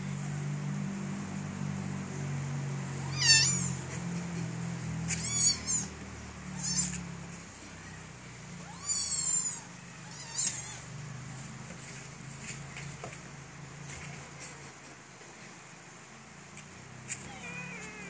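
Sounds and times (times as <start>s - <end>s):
kitten mewing: 3.0s - 3.8s, 5.0s - 10.9s, 17.1s - 18.0s.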